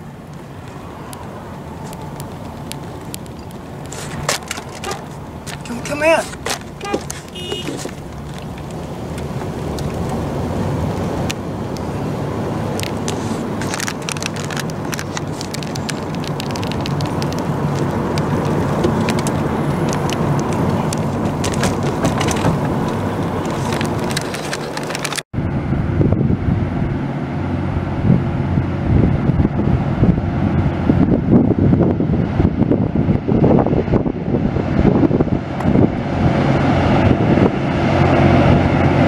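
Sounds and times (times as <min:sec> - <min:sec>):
car road and engine rumble: 0:00.0 - 0:39.0
sharp crackling clicks: 0:00.3 - 0:05.8, 0:06.4 - 0:10.2, 0:12.7 - 0:25.3.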